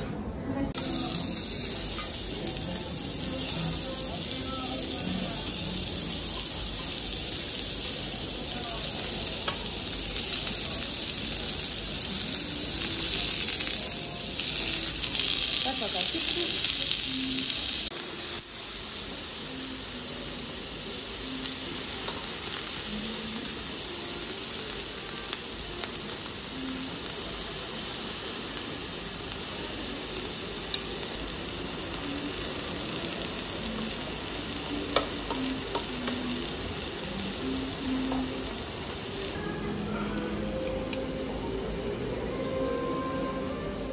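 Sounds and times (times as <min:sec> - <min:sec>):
beef sizzling on grill: 0:00.8 - 0:41.2
metal tongs clicking on grill: 0:34.9 - 0:36.2.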